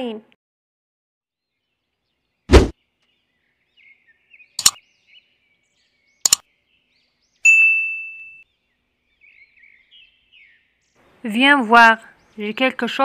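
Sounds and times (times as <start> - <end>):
short low thump: 2.5 - 2.7
bell-like ding: 7.5 - 8.4.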